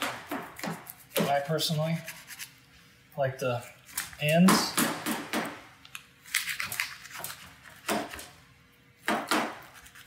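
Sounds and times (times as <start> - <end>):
knife scraping through lasagna and foil: 6.3 - 7.9, 9.7 - 10.0.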